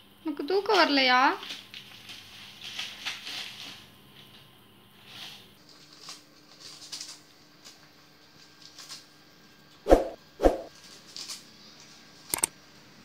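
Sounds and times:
dog tearing paper: 0:01.4 - 0:03.9, 0:05.0 - 0:07.8.

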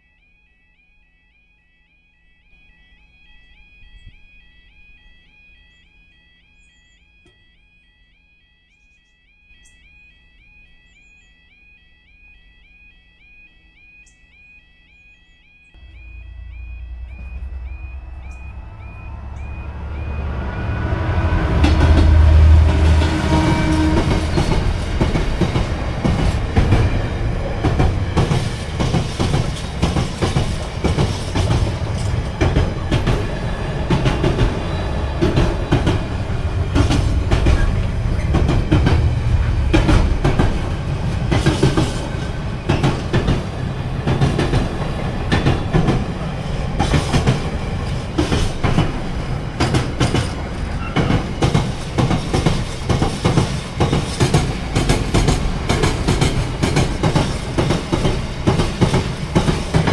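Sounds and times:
locomotive engine rumble: 0:15.8 - 0:59.9
train wheels clickety-clack: 0:16.2 - 0:59.9.

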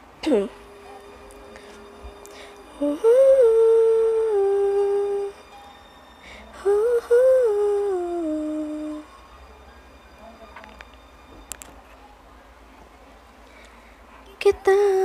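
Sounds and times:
woman humming a slow tune: 0:00.3 - 0:05.4, 0:06.6 - 0:09.1.

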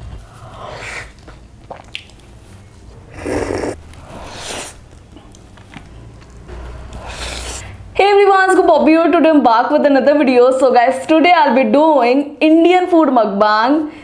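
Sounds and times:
biting and chewing food: 0:03.7 - 0:07.5.

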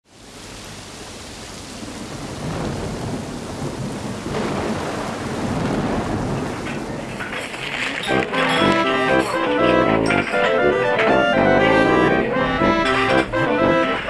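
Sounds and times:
rain falling: 0:00.0 - 0:14.0
rolling thunder: 0:01.7 - 0:08.3.

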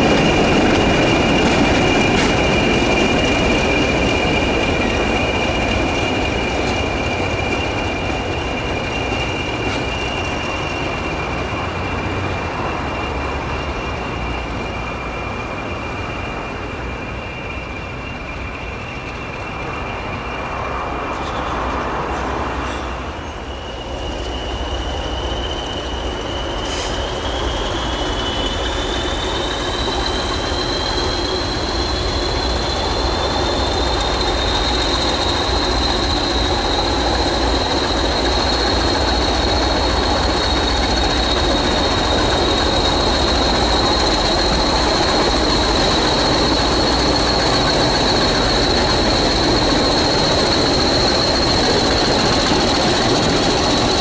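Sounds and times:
turbocharger whistle: 0:23.3 - 0:54.0.

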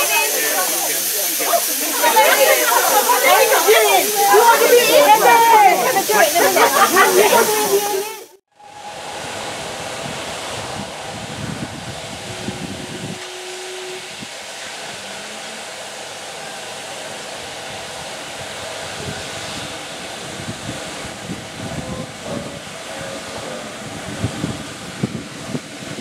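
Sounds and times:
train rolling with rumble: 0:00.0 - 0:08.0, 0:08.6 - 0:26.0
wind rushing: 0:08.6 - 0:15.2, 0:17.3 - 0:26.0.

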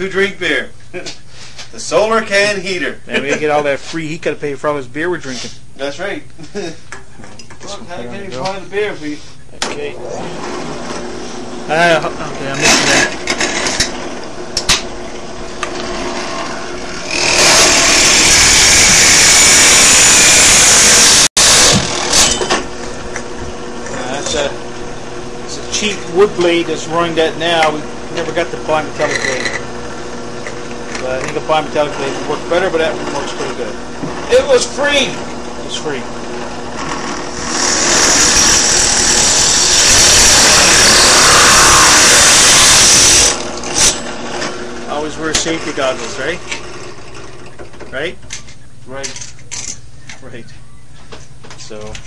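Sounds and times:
drill press running: 0:10.0 - 0:48.5
hole saw grinding metal: 0:12.5 - 0:14.2, 0:15.6 - 0:22.7, 0:25.7 - 0:47.6
hole saw cutting aluminium can: 0:16.2 - 0:22.5, 0:36.9 - 0:44.2.

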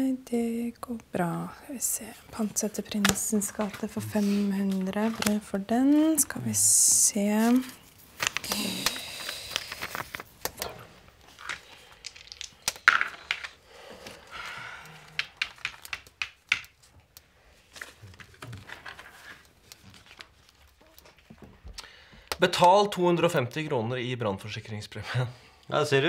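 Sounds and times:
paper rustling: 0:02.4 - 0:12.5, 0:15.2 - 0:21.6.

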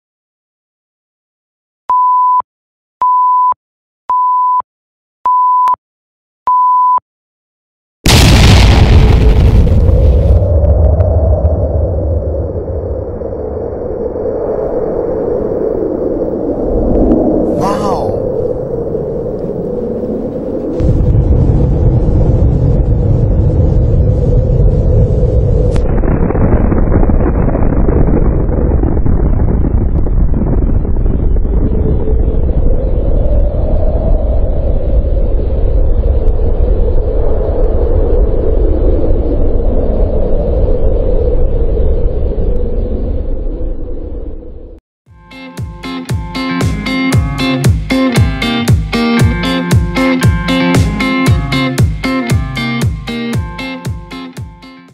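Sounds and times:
deep explosion rumble: 0:08.1 - 0:17.5, 0:20.4 - 0:44.8
countdown timer beeping: 0:45.2 - 0:54.9.

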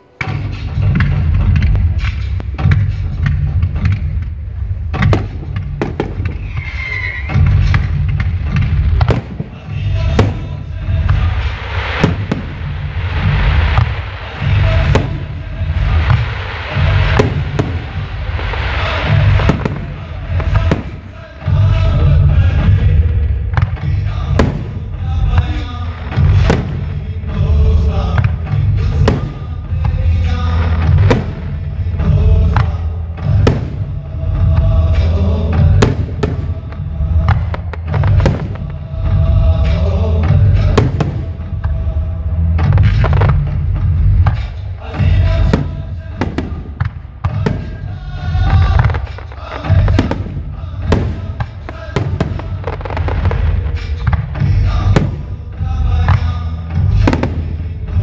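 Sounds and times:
bass-heavy music: 0:00.0 - 0:58.0
firework shells bursting: 0:00.3 - 0:21.9, 0:23.4 - 0:27.0, 0:28.1 - 0:32.7, 0:35.7 - 0:38.8
low rumble: 0:00.3 - 0:58.0
firework hiss and crackle: 0:04.0 - 0:22.4, 0:45.4 - 0:55.3.

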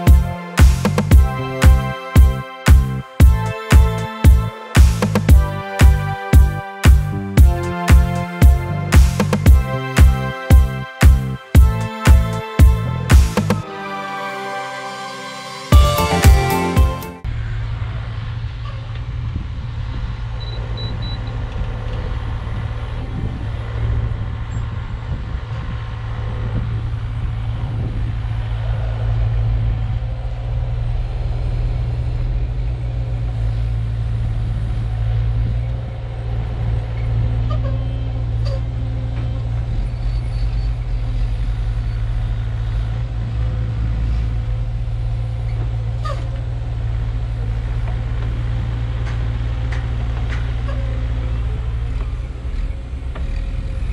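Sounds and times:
excavator diesel engine under load: 0:18.1 - 0:53.9.

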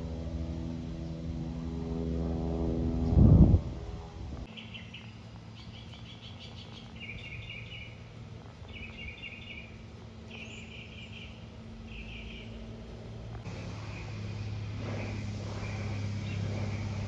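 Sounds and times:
distant propeller plane droning: 0:00.0 - 0:17.0
songbird chirping: 0:04.4 - 0:12.7.

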